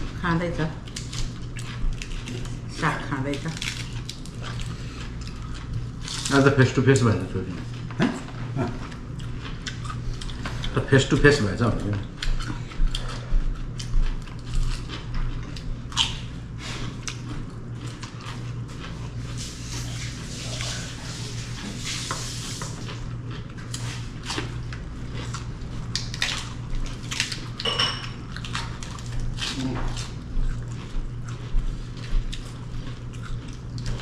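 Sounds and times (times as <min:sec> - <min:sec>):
plates and utensils clinking: 0:27.6 - 0:28.2.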